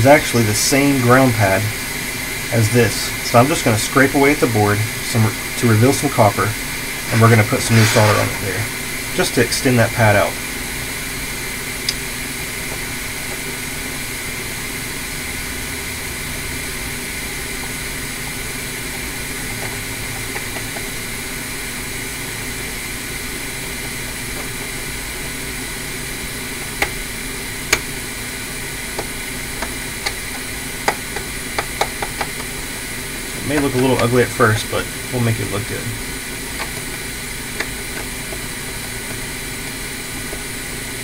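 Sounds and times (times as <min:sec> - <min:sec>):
mechanical hum and hiss: 0:00.0 - 0:41.0
tool scraping circuit board: 0:07.1 - 0:08.6.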